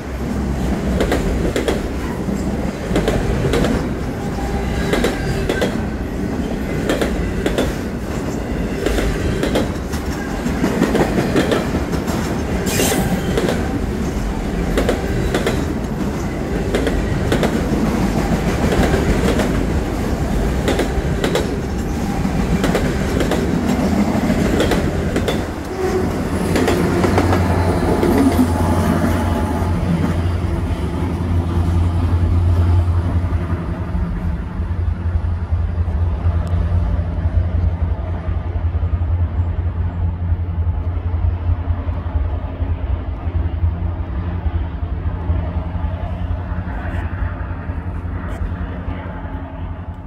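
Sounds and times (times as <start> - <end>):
locomotive engine drone: 0.0 - 50.0
train wheels clicking over rail joints: 0.7 - 28.4.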